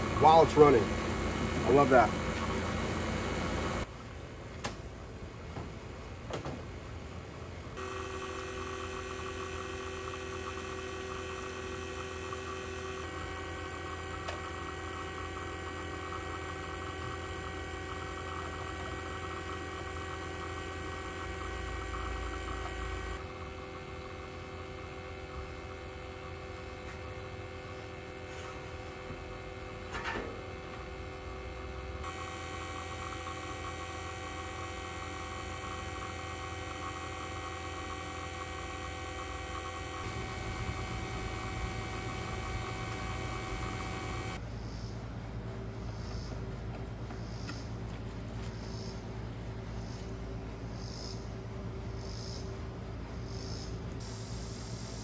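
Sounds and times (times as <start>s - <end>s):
hvac motor hum: 0.0s - 4.0s, 7.0s - 44.7s.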